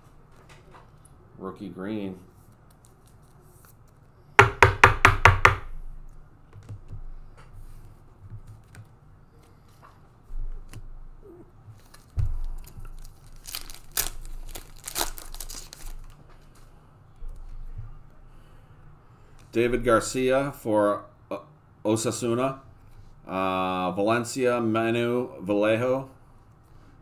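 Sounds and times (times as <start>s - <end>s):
sharp knocks: 4.4s - 5.7s
foil pack crinkling and tearing: 11.8s - 16.2s.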